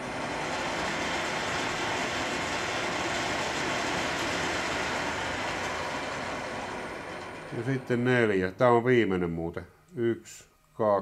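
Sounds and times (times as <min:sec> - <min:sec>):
milling machine cutting metal: 0:00.0 - 0:08.3.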